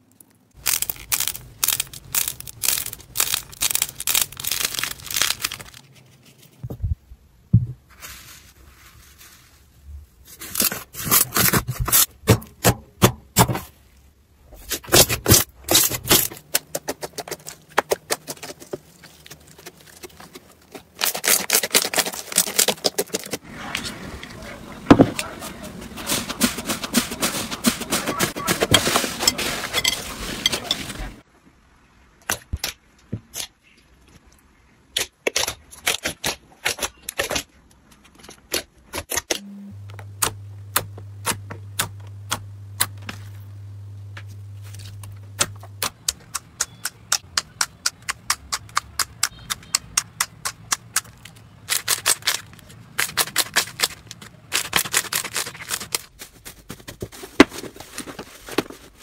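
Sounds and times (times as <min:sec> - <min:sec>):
low steady hum: 0:39.4 - 0:48.2.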